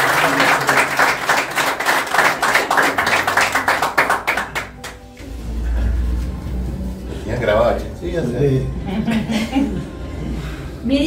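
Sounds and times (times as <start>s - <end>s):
people clapping: 0.0s - 5.2s.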